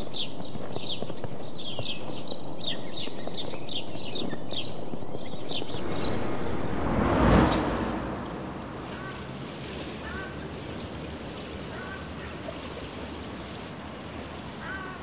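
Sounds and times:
small birds chirping: 0.0s - 6.6s
whoosh: 5.6s - 9.4s.

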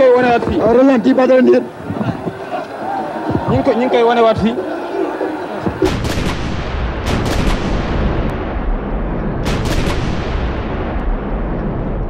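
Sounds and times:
distorted arena crowd noise: 0.0s - 12.0s
sharp cracks: 5.7s - 12.0s.

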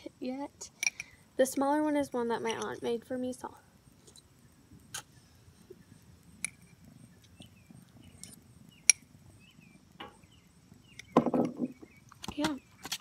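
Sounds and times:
crickets droning: 0.0s - 13.0s
small chirps: 0.6s - 1.4s, 3.6s - 13.0s.

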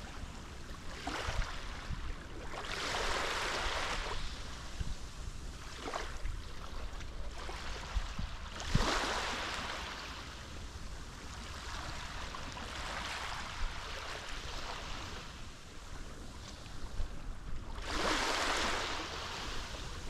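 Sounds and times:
sea waves washing onto shore: 17.6s - 20.0s.

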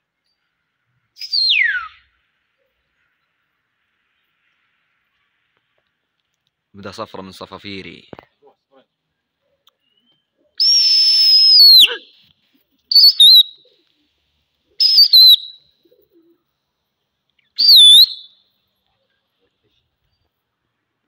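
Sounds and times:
person whistling shrilly: 1.2s - 2.1s, 10.6s - 12.1s, 12.9s - 13.6s, 14.8s - 15.6s, 17.6s - 18.4s.

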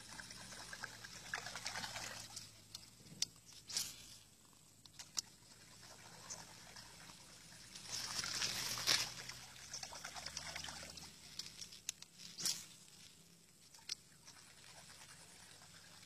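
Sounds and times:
water splashing and sloshing: 0.0s - 4.4s, 5.0s - 16.0s.

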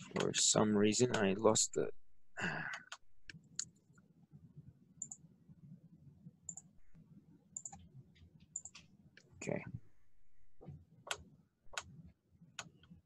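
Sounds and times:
low room hum: 0.0s - 13.0s
computer mouse clicks: 6.5s - 6.7s, 7.6s - 7.9s, 8.6s - 8.9s.

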